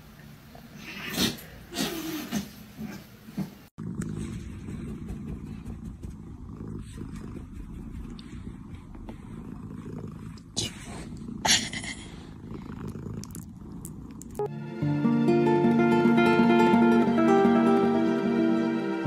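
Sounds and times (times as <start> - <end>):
kitten purring: 3.8 - 14.5.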